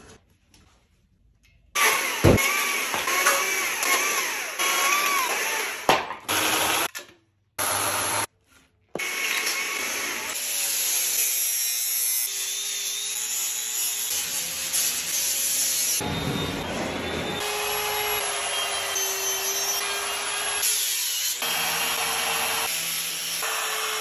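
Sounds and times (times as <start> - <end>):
chainsaw cutting wood: 1.8 - 6.9
grinder whining on wood: 1.8 - 6.9, 7.6 - 8.3.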